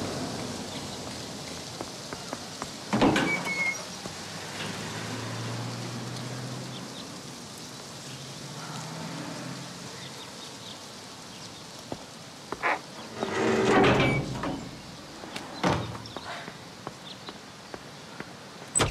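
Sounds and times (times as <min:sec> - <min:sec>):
metal door scraping and squealing: 0:03.0 - 0:03.9, 0:12.6 - 0:16.0
car engine passing: 0:04.2 - 0:07.5, 0:08.3 - 0:10.0.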